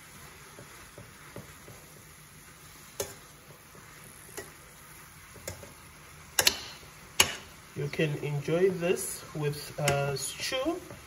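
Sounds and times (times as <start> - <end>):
greens sizzling in oil: 0.0 - 11.0
spoon clicking against pan: 3.0 - 3.2, 4.3 - 4.6, 5.4 - 5.8, 6.4 - 7.4.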